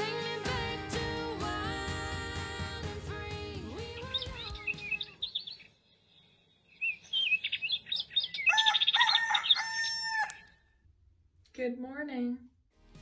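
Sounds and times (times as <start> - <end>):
songbirds chirping: 3.7 - 10.8
rooster crowing: 8.4 - 10.7.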